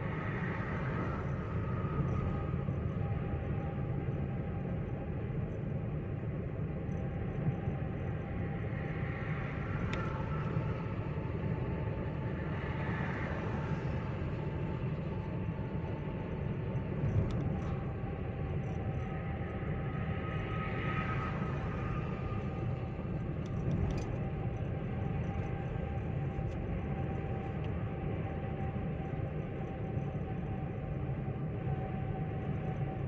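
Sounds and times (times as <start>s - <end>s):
car engine and road rumble: 22.4s - 27.0s.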